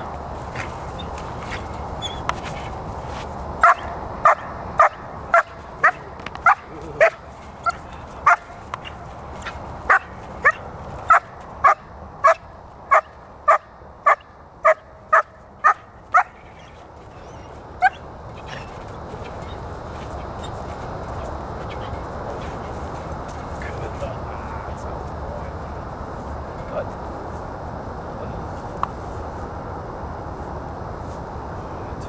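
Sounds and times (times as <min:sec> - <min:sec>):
puppy barking: 0:03.6 - 0:18.7.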